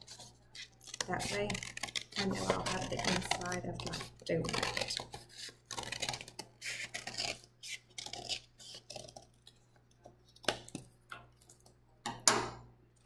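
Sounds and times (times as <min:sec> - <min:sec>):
scissors snipping paper: 0:00.0 - 0:09.6.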